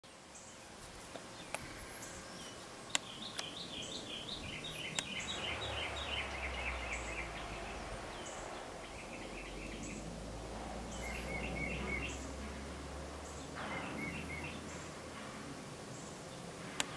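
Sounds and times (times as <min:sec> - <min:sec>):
small birds chirping: 0:00.1 - 0:16.9
sharp clicks: 0:02.9 - 0:03.6, 0:04.9 - 0:05.2
low steady rumble: 0:03.2 - 0:16.9.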